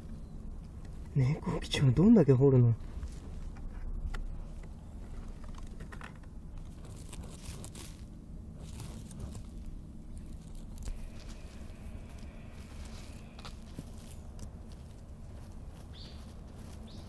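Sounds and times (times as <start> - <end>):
cat scratching in soil: 5.2 - 17.0.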